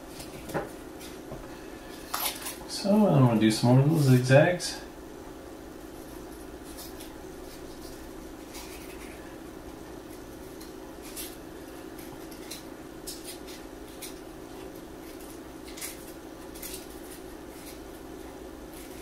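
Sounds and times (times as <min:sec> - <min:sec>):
low background hum: 0:00.0 - 0:19.0
scissors snipping paper: 0:10.1 - 0:17.9.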